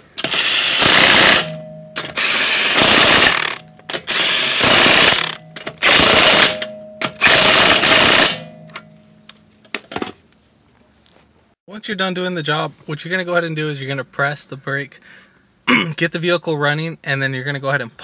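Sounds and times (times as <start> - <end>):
impact wrench hammering: 0.0 - 9.1
tool motor humming down: 0.2 - 8.5.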